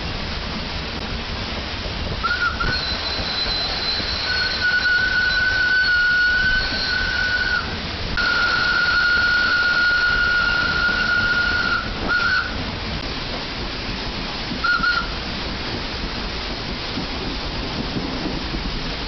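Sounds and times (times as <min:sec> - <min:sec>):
constant rushing noise: 0:00.0 - 0:19.0
steam locomotive whistle blasts: 0:02.2 - 0:12.7, 0:14.6 - 0:15.3.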